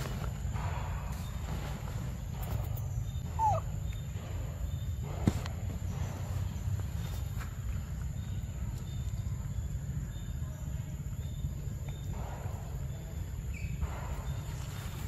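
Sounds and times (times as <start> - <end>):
steady low rumble: 0.0 - 15.0
whimper-like animal call: 3.2 - 4.2.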